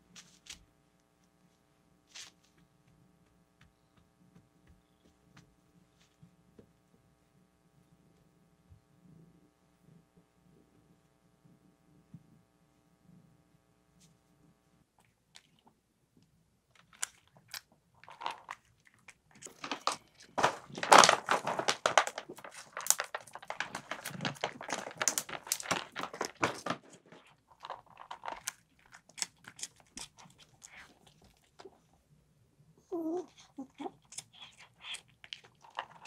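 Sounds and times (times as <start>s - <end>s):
cats crunching dry food: 16.7s - 31.9s, 33.4s - 36.0s.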